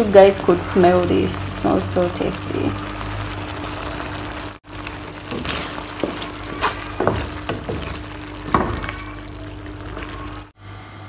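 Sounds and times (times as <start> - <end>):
spoon scraping and knocking pan: 4.7 - 10.4.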